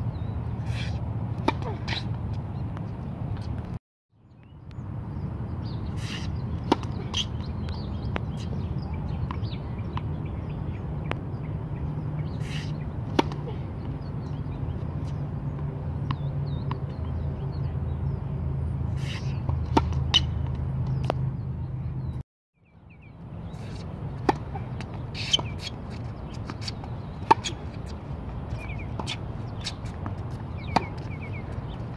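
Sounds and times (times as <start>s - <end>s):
racket hitting tennis ball: 0.7s - 2.4s, 6.0s - 7.5s, 12.4s - 13.6s, 19.0s - 21.2s, 23.6s - 31.9s
birds chirping: 4.3s - 31.9s.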